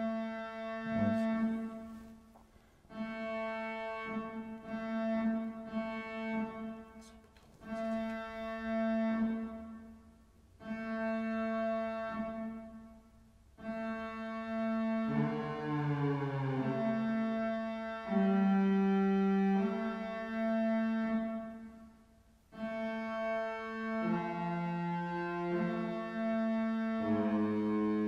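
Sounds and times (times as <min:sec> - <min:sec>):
square-wave synthesizer drone: 0:00.8 - 0:01.6.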